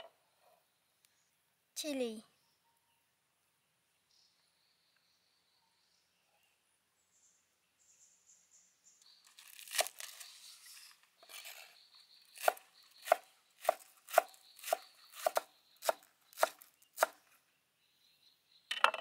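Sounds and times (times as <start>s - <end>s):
cleaver chopping on wooden board: 12.4s - 17.2s.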